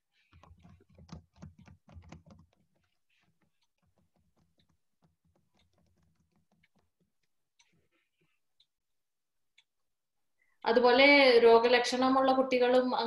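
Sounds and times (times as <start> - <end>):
keyboard typing clicks: 0.3 - 7.3.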